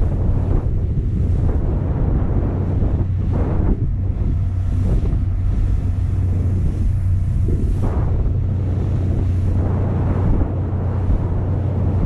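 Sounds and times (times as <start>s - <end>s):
boat engine drone: 0.0s - 12.0s
water churning: 0.0s - 12.0s
wind on microphone: 0.0s - 12.0s.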